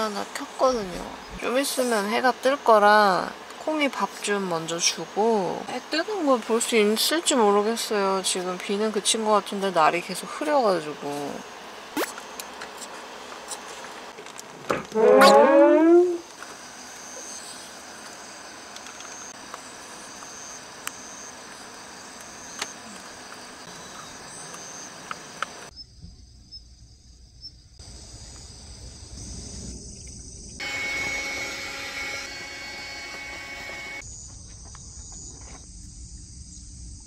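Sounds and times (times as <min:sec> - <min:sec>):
steady tones: 0:14.7 - 0:16.2
insects chirring: 0:16.2 - 0:30.8, 0:34.0 - 0:37.0.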